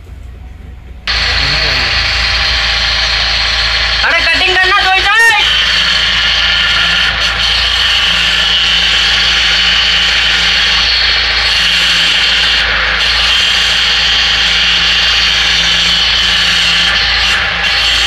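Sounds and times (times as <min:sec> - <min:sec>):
machine running with high whine: 0:01.0 - 0:18.0.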